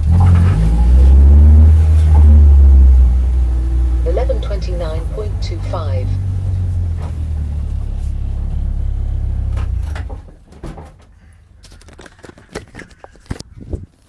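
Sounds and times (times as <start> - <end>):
race car engine running: 0.0 - 10.5.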